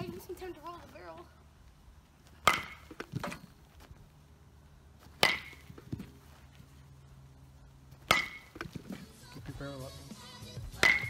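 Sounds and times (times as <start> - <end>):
bat hitting baseball: 2.4 - 3.5, 5.0 - 6.1, 8.0 - 9.0, 10.6 - 11.0.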